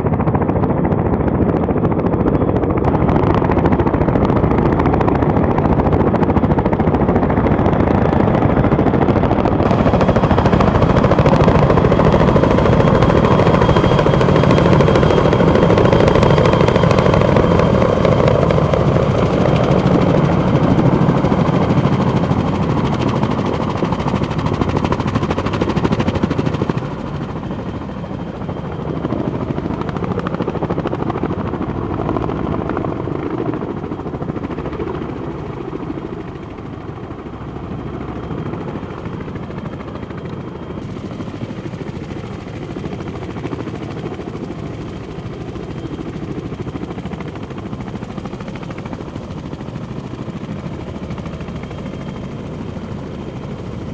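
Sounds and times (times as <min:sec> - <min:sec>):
helicopter rotor chop: 0:00.0 - 0:53.9.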